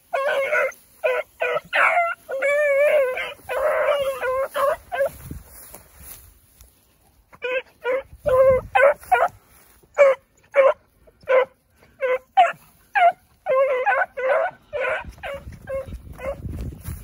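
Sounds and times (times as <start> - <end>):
puppy yipping and bawling: 0.0 - 5.2, 7.4 - 9.3, 9.9 - 16.4.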